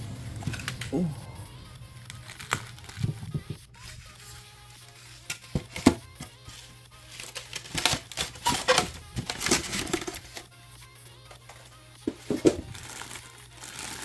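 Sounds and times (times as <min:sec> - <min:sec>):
faint background music: 0:00.0 - 0:14.0
styrofoam knocks scrapes and squeaks: 0:07.2 - 0:10.5.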